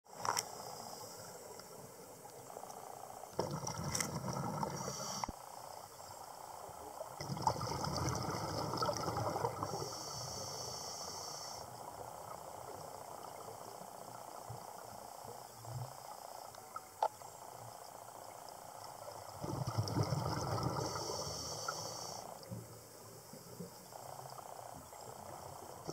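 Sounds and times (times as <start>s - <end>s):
faint underwater background: 0.1s - 25.9s
regulator hiss: 0.2s - 3.4s, 4.5s - 7.0s, 9.6s - 19.3s, 20.8s - 25.9s
exhaled bubbles gurgling underwater: 3.3s - 5.2s, 6.8s - 10.6s, 19.0s - 25.9s.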